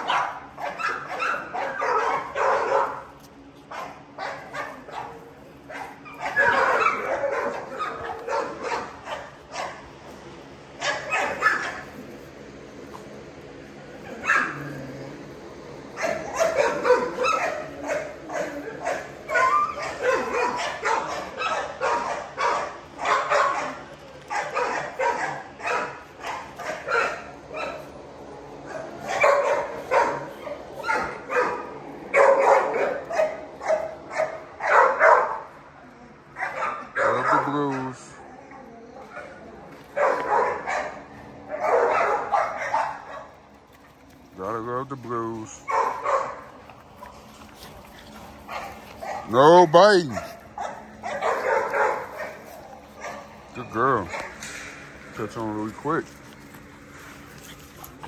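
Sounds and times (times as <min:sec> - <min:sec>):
puppies yipping and barking: 0:00.0 - 0:55.4.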